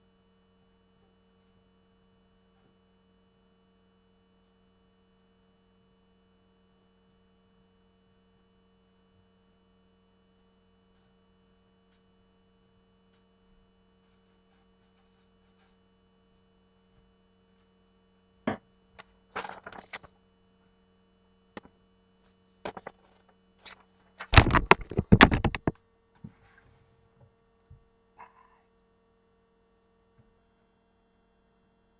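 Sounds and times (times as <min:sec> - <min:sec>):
sharp clicks and knocks: 0:22.7 - 0:25.8.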